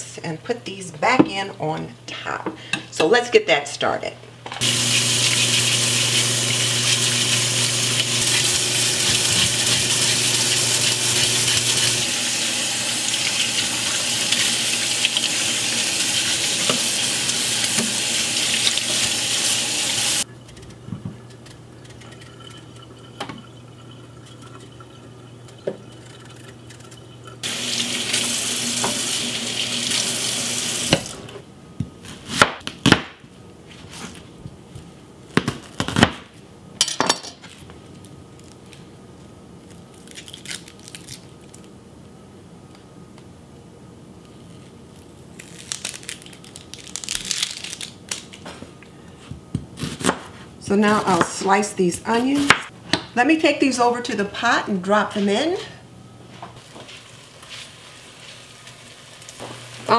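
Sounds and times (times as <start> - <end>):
faucet running into sink: 4.6 - 20.2, 22.2 - 31.3
knife chopping on cutting board: 49.8 - 50.3
knife peeling potato: 49.8 - 51.2.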